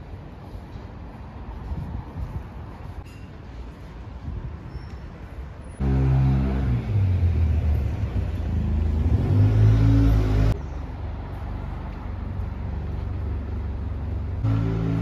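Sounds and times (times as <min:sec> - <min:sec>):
street noise: 0:00.0 - 0:15.0
vehicle engine revving: 0:05.8 - 0:10.6, 0:14.4 - 0:15.0.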